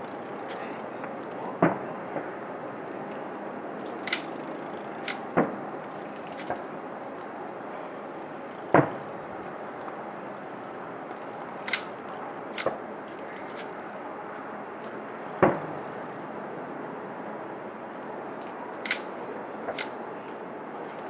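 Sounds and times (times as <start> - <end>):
steady background hiss: 0.0 - 21.0
sharp high-pitched cracks: 3.8 - 7.2, 11.1 - 13.8, 18.7 - 20.0.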